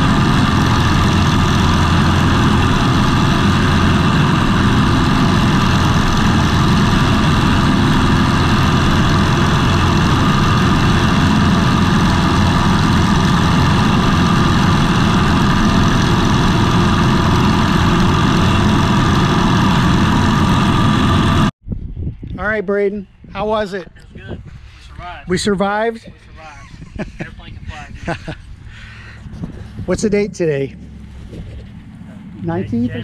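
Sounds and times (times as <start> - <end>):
light aircraft engine drone: 0.0 - 21.5, 26.0 - 33.0.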